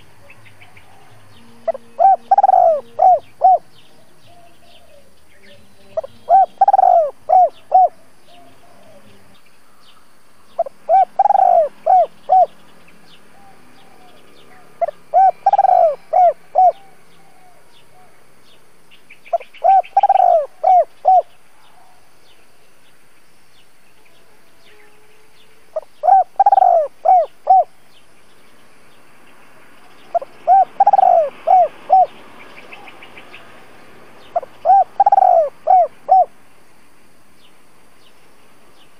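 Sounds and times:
small birds chirping: 0:00.0 - 0:38.9
dove cooing: 0:00.2 - 0:05.1, 0:05.9 - 0:09.2, 0:10.6 - 0:12.5, 0:13.4 - 0:18.2, 0:19.3 - 0:22.0, 0:25.7 - 0:27.8, 0:30.1 - 0:33.0, 0:34.3 - 0:36.4.

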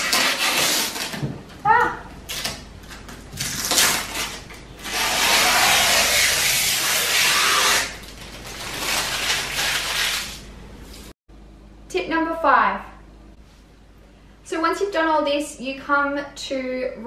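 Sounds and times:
plastic film crackling: 0:00.0 - 0:01.2, 0:02.2 - 0:11.1
plastic film peeling: 0:00.0 - 0:01.3, 0:02.2 - 0:11.1
loose film crinkling: 0:00.0 - 0:11.1.

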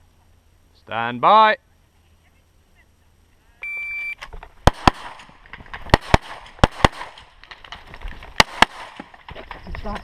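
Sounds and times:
shot timer beep: 0:03.6 - 0:04.2
pistol shots: 0:04.6 - 0:09.2.

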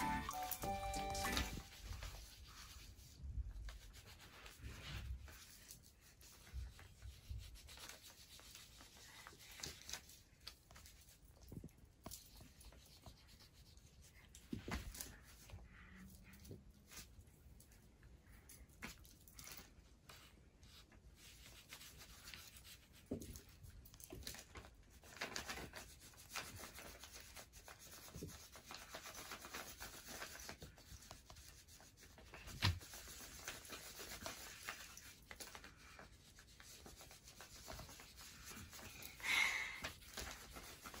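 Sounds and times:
paper rustling: 0:24.2 - 0:39.2, 0:39.8 - 0:41.0.

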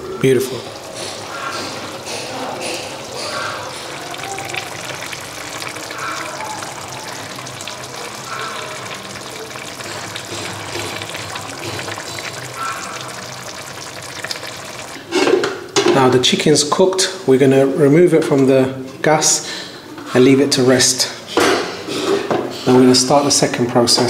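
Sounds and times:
sauce bubbling and crackling: 0:00.2 - 0:15.8.

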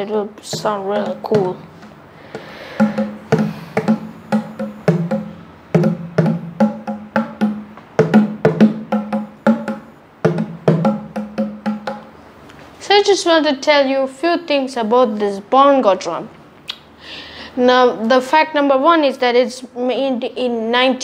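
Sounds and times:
bongo drums played by hand: 0:00.5 - 0:12.2.

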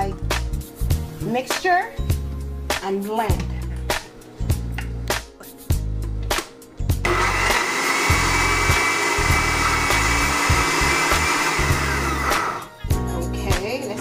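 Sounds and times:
blender motor whirring: 0:07.0 - 0:12.7.

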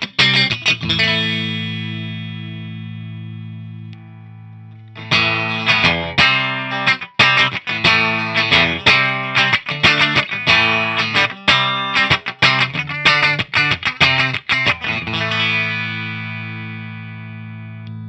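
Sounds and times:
electric guitar chords: 0:00.0 - 0:18.0
electric guitar strumming: 0:00.0 - 0:18.0.

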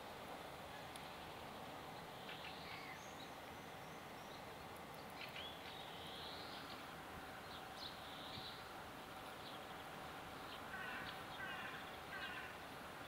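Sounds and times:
outdoor background hiss: 0:00.0 - 0:13.0
small birds singing: 0:00.7 - 0:12.8.

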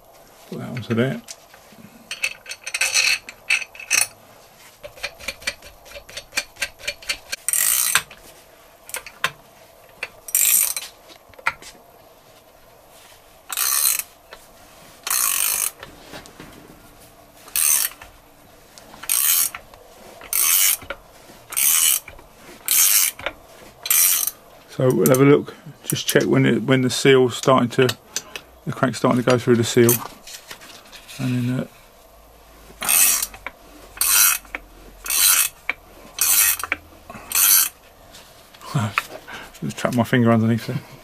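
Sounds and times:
socket ratchet clicking: 0:19.0 - 0:19.6, 0:20.3 - 0:20.9, 0:36.2 - 0:37.8.

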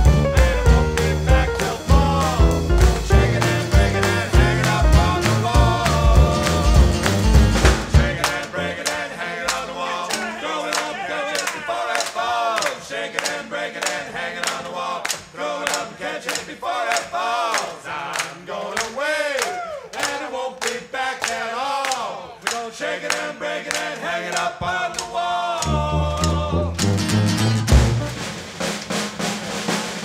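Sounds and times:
heavy drums and bass: 0:00.0 - 0:08.2, 0:25.7 - 0:30.0
steady percussion beat: 0:00.0 - 0:08.4, 0:25.6 - 0:30.0
voices singing together: 0:00.0 - 0:27.0.

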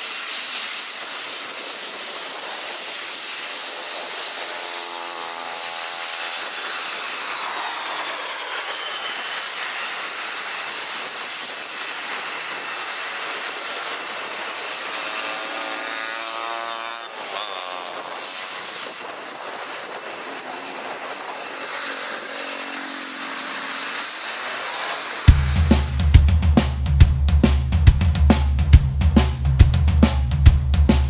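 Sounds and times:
jet engines hissing and whining: 0:00.0 - 0:26.0
aircraft passing: 0:01.2 - 0:26.3
drum-led music: 0:25.3 - 0:31.0.

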